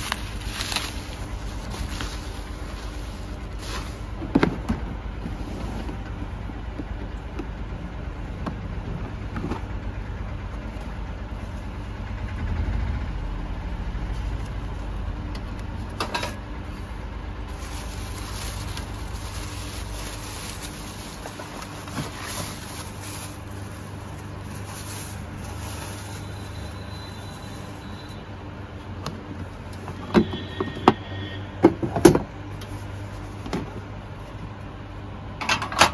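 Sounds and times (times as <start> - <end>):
plastic wrapping crackling: 0.0 - 4.3, 16.7 - 27.9
low rumble: 9.9 - 16.0.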